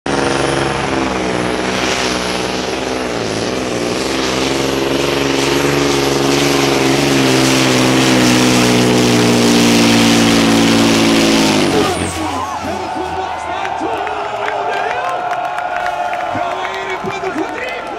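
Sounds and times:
truck diesel engine under load: 0.0 - 15.1.

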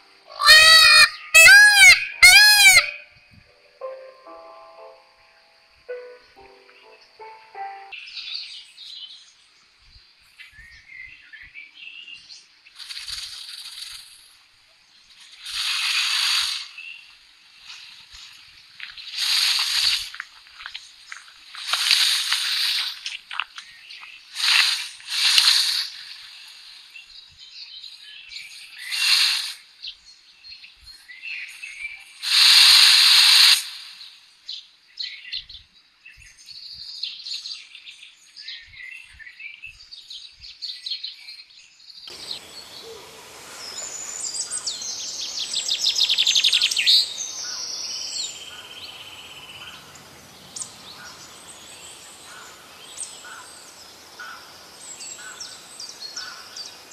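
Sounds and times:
steady hiss: 12.6 - 29.8, 32.1 - 34.5, 42.1 - 56.9
birds chirping: 42.0 - 56.9.

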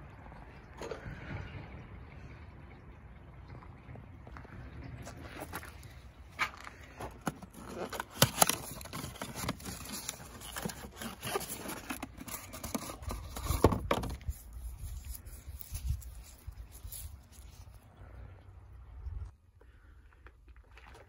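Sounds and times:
metal filter scraping: 5.1 - 17.8
cardboard box rustling: 6.4 - 17.7.

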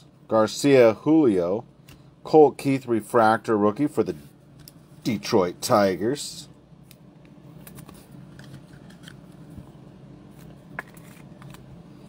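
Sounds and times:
low steady hum: 0.0 - 12.0
card sliding into plastic sleeve: 7.6 - 9.6.

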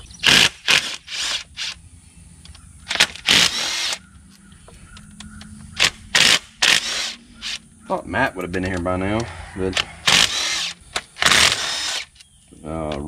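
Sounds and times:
cordless driver spinning bolts: 0.2 - 1.8, 2.9 - 4.0, 5.8 - 7.6, 9.7 - 12.2.

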